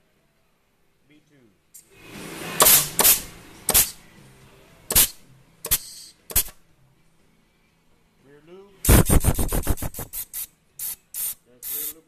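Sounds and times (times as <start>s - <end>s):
compressed air blasts hissing: 1.8s - 4.0s, 4.9s - 6.6s, 8.8s - 12.0s.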